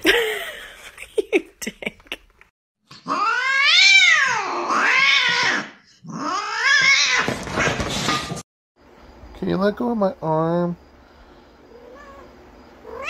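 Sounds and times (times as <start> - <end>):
cat yowling: 3.0 - 7.7, 11.8 - 13.0.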